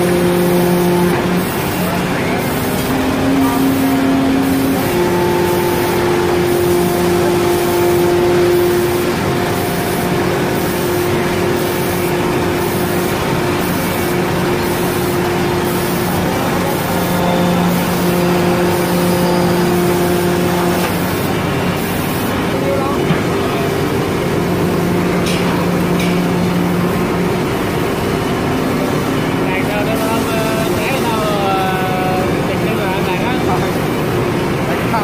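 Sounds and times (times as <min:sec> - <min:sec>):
router cutting wood whine: 0:02.8 - 0:20.9.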